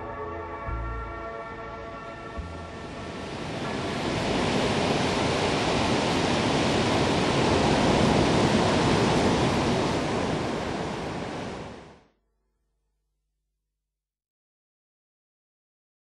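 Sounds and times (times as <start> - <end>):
ocean waves breaking: 1.8 - 12.0.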